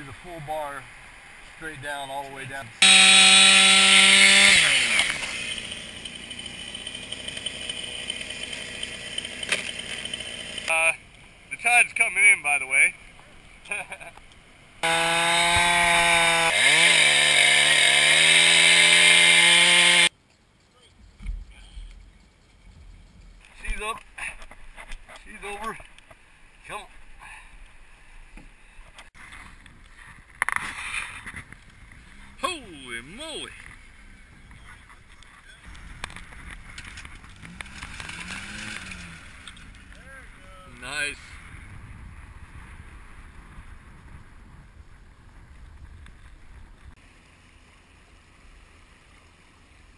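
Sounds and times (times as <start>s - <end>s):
wind: 0.0s - 49.9s
chainsaw cutting log: 2.8s - 10.7s, 14.8s - 20.1s, 36.9s - 39.4s
truck engine: 2.8s - 11.2s, 14.8s - 20.2s, 36.0s - 40.4s.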